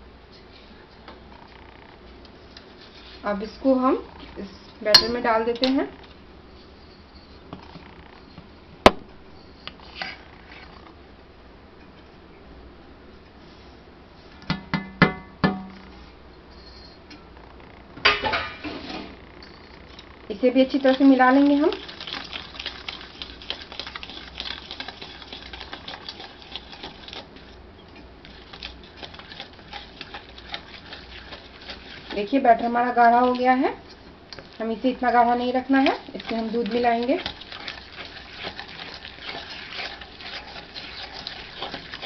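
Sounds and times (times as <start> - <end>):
spoon scraping metal bowl: 2.6 - 6.0, 9.4 - 10.9, 18.6 - 42.0.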